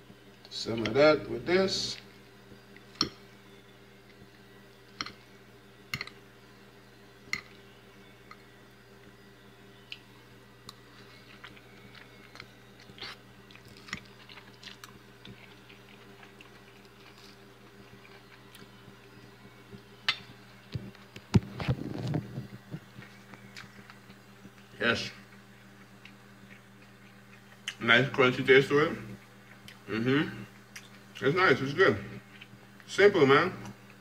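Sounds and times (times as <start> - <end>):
steady low hum: 0.0 - 34.0
chewing and crunching: 9.7 - 27.8, 29.0 - 31.3, 32.2 - 32.9.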